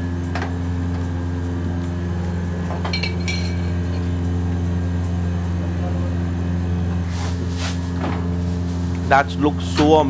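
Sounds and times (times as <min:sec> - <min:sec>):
low mechanical hum: 0:00.0 - 0:10.0
steel bowl clinking: 0:02.9 - 0:04.1.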